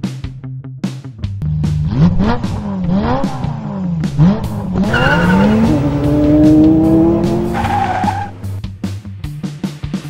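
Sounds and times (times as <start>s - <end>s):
race car engine revving: 1.7s - 8.6s
tyre squeal: 4.6s - 8.6s.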